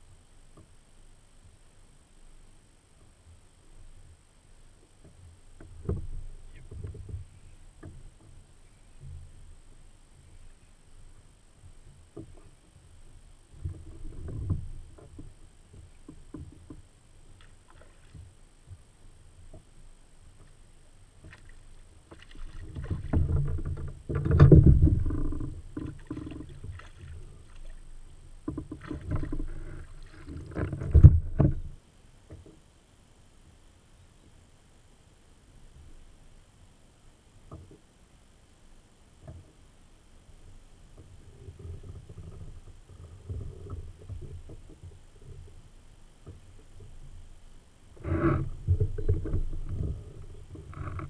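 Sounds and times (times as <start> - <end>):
knocks and clatter on kayak hull: 4.8 - 9.3, 13.5 - 18.8, 21.2 - 27.8, 28.4 - 32.6, 40.9 - 45.6, 48.0 - 51.0.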